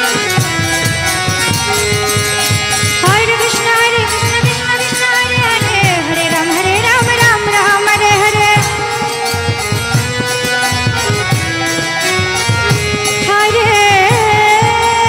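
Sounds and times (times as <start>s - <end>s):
steady percussion beat: 0.0s - 15.0s.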